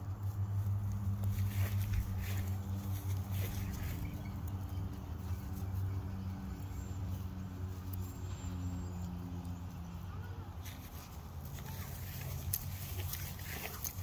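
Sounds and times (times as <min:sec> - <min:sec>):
dog sniffing in dry grass: 0:00.2 - 0:04.5, 0:10.6 - 0:14.0.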